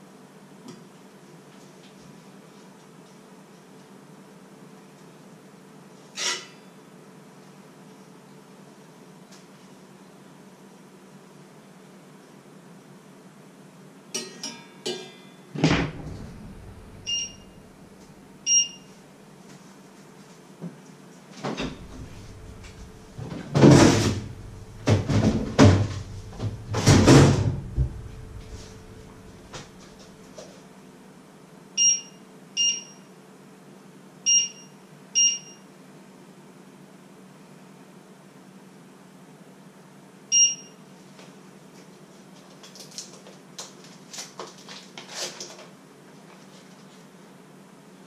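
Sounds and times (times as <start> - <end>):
clattering and rustling: 15.6 - 18.2, 21.4 - 30.6
electric hob beeping: 15.8 - 17.9, 21.6 - 29.8.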